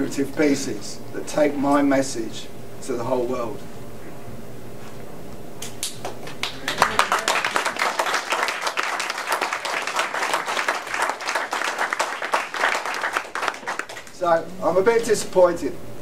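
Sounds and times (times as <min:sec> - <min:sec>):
audience applauding: 0:05.8 - 0:14.2.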